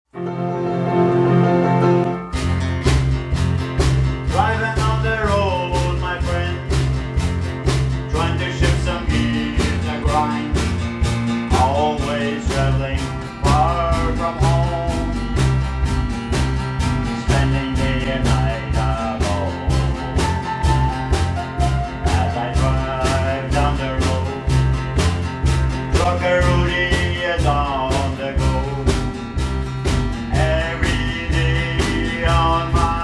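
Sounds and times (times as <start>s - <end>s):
melody: 0.2s - 2.4s
repeating bass line: 0.2s - 33.0s
drum beat: 2.2s - 33.0s.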